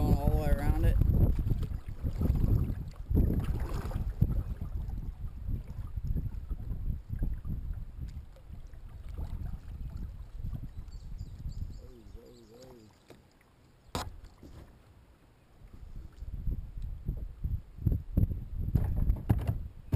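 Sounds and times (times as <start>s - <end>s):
low rumble of water and wind: 0.0s - 19.9s
kayak paddle strokes in water: 1.0s - 11.5s.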